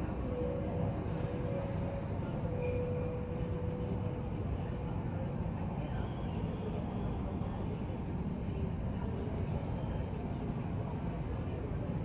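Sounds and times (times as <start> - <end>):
faint steady whine: 0.0 - 8.9.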